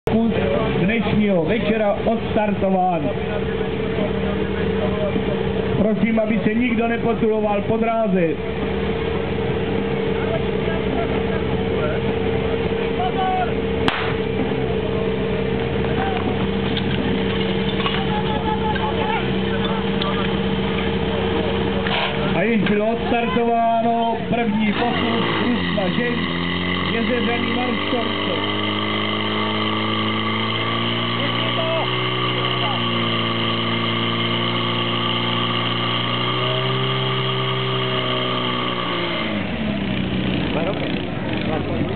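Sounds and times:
pump engine droning: 0.1s - 41.9s
starting pistol shot: 13.8s - 14.3s.

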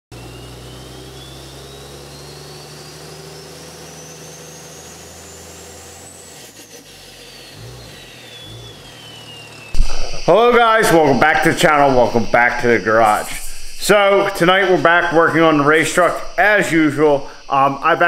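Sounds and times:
engine running: 0.1s - 18.0s
thin high whine: 0.2s - 18.0s
low thump: 9.8s - 10.2s.

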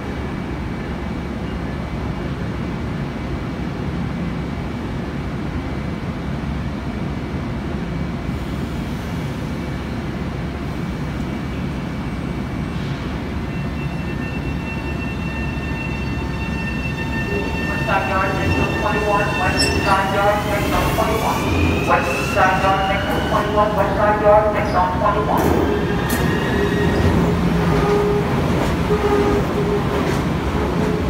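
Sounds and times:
train equipment humming: 13.6s - 31.0s.

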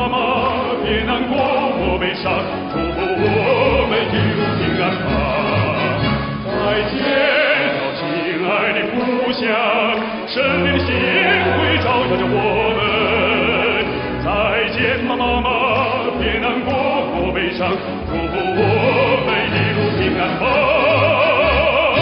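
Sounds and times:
male baritone singing: 0.0s - 22.0s
orchestral accompaniment: 0.0s - 22.0s.

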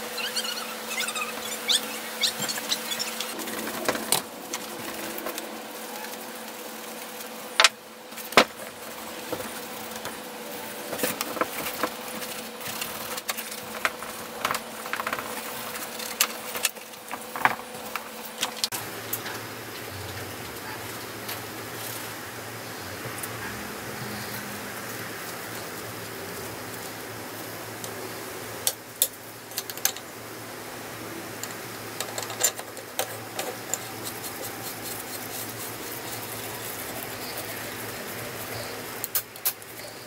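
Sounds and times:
rag rubbing on metal housing: 0.0s - 5.7s, 33.0s - 38.8s
steady low hum: 0.0s - 40.0s.

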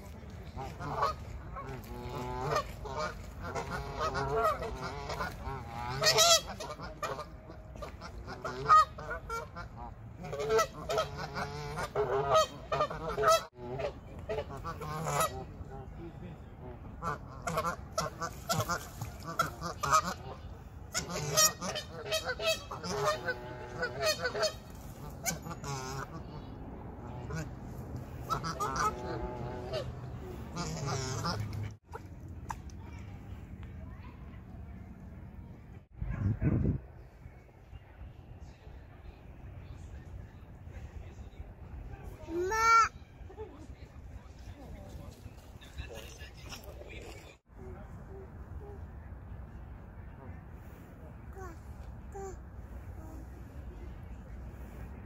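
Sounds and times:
geese honking: 0.6s - 15.9s, 17.0s - 31.7s.

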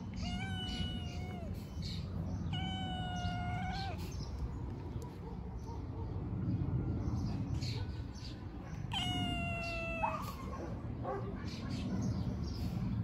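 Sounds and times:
cat meowing: 0.0s - 4.2s, 8.9s - 10.5s
low background rumble: 0.0s - 13.0s.

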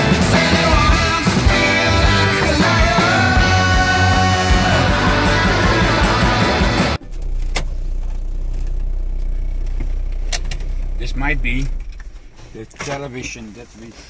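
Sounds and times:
rock music: 0.0s - 7.1s
car interior rumble: 0.0s - 14.0s.

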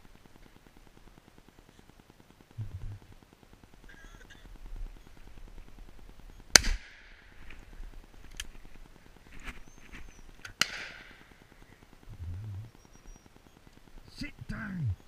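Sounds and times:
distant gunshots: 6.5s - 7.2s, 10.6s - 11.4s
shotgun shots echoing: 6.5s - 7.2s, 10.6s - 11.4s.

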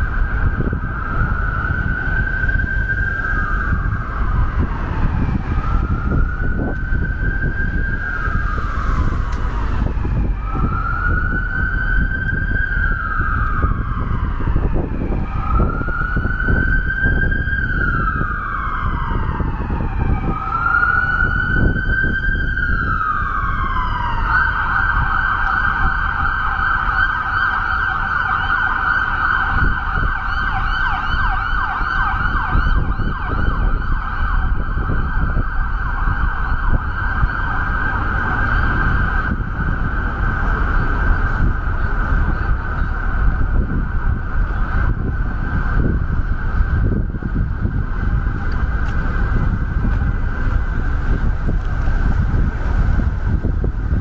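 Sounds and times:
emergency vehicle siren: 0.0s - 54.0s
street traffic rumble: 0.0s - 54.0s.

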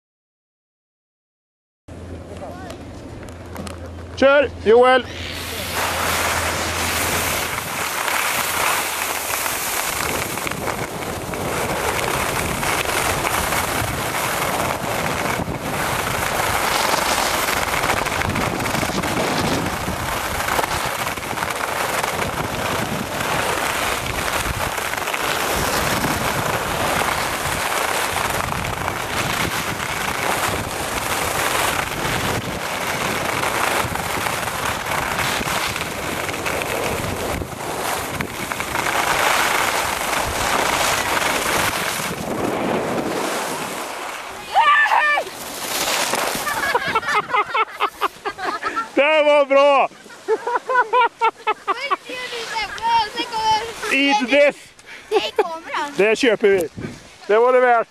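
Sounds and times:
wind rushing over microphone: 4.5s - 48.4s, 56.0s - 57.2s
skis scraping on hard snow: 5.1s - 57.9s.

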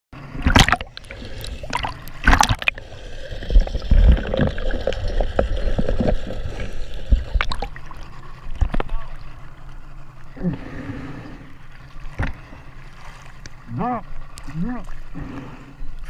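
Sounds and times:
muffled underwater rumble: 0.2s - 16.0s
water splashing and sloshing: 0.2s - 16.0s.

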